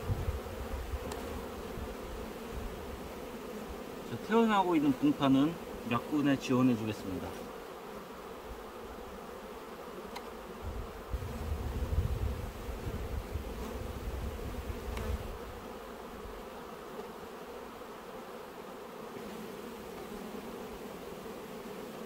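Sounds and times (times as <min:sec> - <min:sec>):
bees buzzing: 0:00.0 - 0:22.0.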